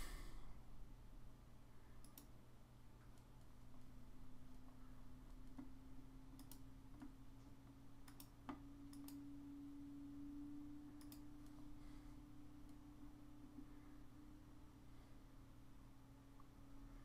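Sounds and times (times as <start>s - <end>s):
steady low hum: 0.0s - 17.0s
faint mouse clicks: 2.0s - 2.4s, 3.0s - 5.7s, 6.4s - 9.2s, 11.0s - 11.6s.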